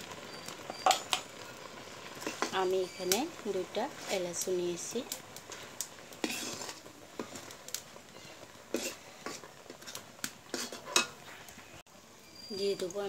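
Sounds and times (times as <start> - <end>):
metal spoon scraping a pan: 0.7 - 1.4, 2.1 - 4.5, 5.5 - 7.6, 8.2 - 11.5.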